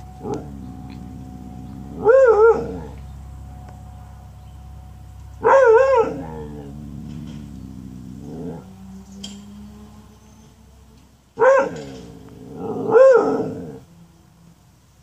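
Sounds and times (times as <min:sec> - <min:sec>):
dog barking: 0:02.0 - 0:03.0, 0:05.4 - 0:06.5, 0:11.4 - 0:11.8, 0:12.8 - 0:13.6.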